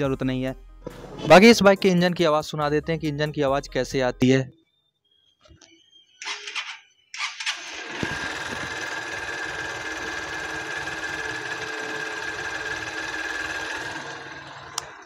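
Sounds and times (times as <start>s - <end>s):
motorcycle engine starting and idling: 6.2s - 15.0s.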